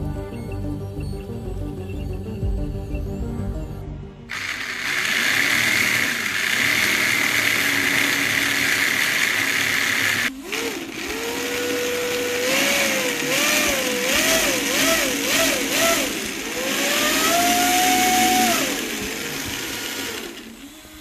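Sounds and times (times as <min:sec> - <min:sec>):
motor whine rising and falling: 0:00.0 - 0:21.0
electric motors whirring: 0:04.3 - 0:21.0.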